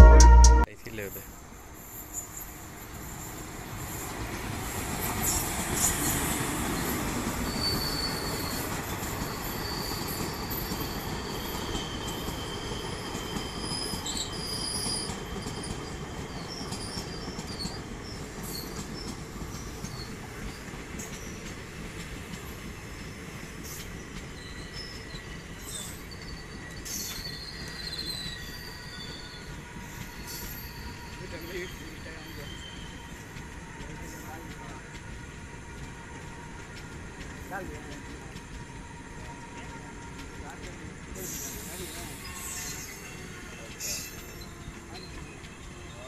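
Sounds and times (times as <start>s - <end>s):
train wheels rumbling on rail: 1.8s - 46.0s
high wheel squeals: 5.2s - 21.4s, 23.0s - 34.5s, 41.1s - 46.0s.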